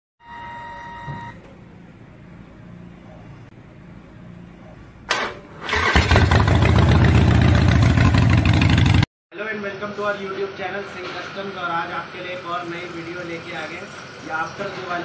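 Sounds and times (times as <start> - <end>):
short steady tone: 0.2 - 1.4
engine starting and running: 5.0 - 9.1.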